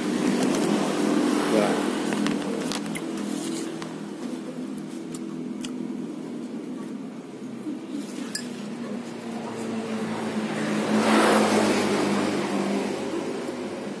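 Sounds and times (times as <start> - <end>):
vehicle passing on road: 8.7 - 14.0.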